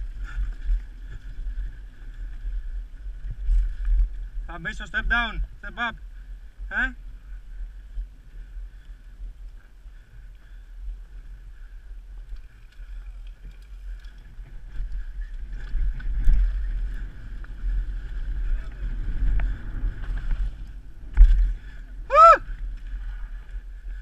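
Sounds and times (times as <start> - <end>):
mountain bike rattling on dirt trail: 0.0 - 24.0
wind buffeting microphone: 0.0 - 24.0.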